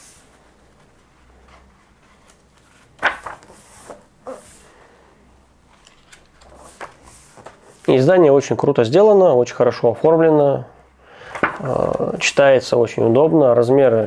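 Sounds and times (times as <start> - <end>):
book rustling and knocking: 0.8 - 4.1, 11.3 - 11.8.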